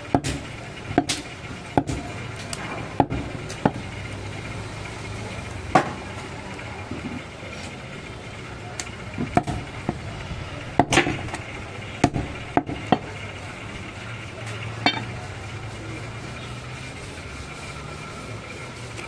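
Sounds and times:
cleaver chopping on wooden block: 0.1 - 1.2, 1.8 - 2.1.

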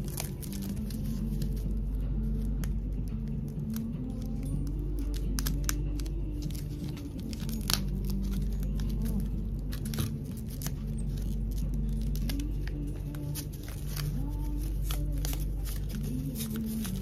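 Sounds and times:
paper tearing and crinkling: 0.0 - 1.7, 5.0 - 17.0
scissors snipping paper: 0.0 - 1.7, 2.4 - 17.0.

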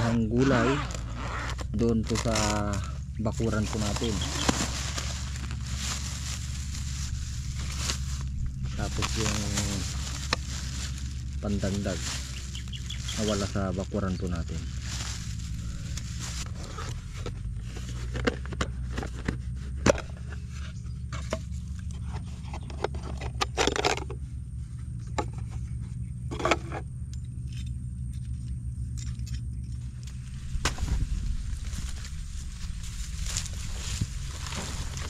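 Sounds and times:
low rumble: 0.0 - 35.0
handling clicks and knocks: 21.0 - 24.2.

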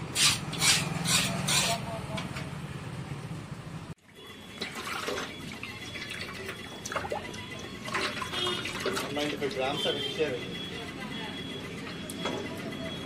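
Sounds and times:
water splashes and drips: 4.5 - 9.7.

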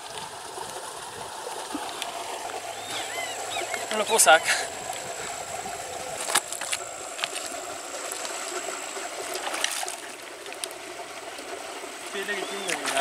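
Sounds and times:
river water running: 0.0 - 13.0.

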